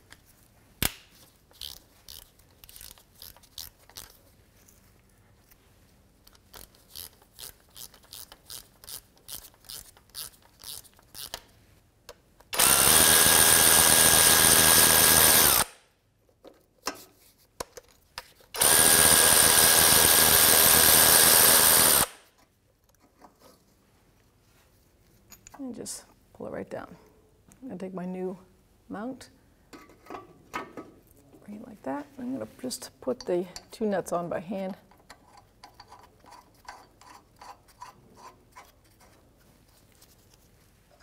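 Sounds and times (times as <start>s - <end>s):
power ratchet running: 12.6s - 15.8s, 18.6s - 22.2s.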